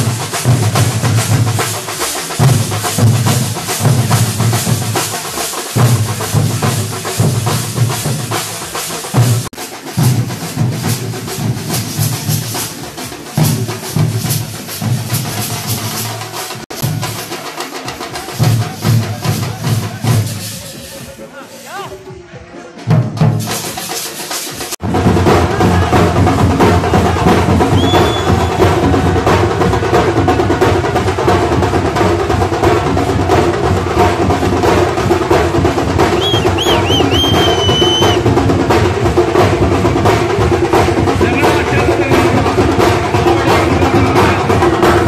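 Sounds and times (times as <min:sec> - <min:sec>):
hand cymbals: 0:00.0 - 0:21.9, 0:23.2 - 0:24.8
large barrel drums: 0:00.0 - 0:45.0
percussion band playing: 0:00.0 - 0:45.0
high whistle-like tones: 0:27.7 - 0:28.8, 0:36.1 - 0:38.2.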